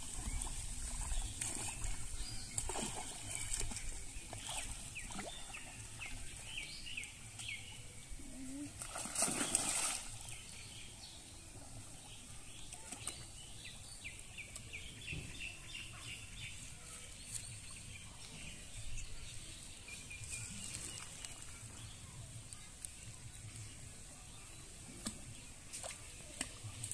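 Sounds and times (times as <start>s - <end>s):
water splash: 0.0s - 5.6s, 8.8s - 10.3s
small birds chirping: 0.0s - 26.9s.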